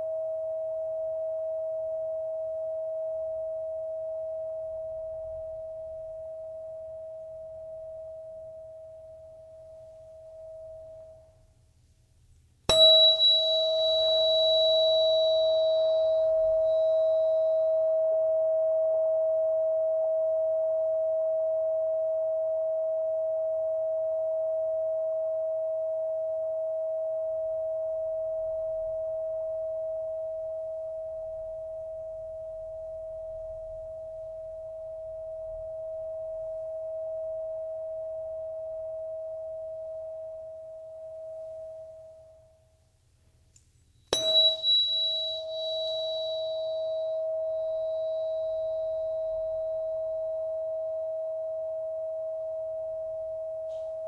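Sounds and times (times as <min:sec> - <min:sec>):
tuning fork ringing tone: 0:00.0 - 0:11.5, 0:12.7 - 0:42.7, 0:44.1 - 0:54.0
tuning fork strike click: 0:12.7 - 0:17.8, 0:44.1 - 0:49.6.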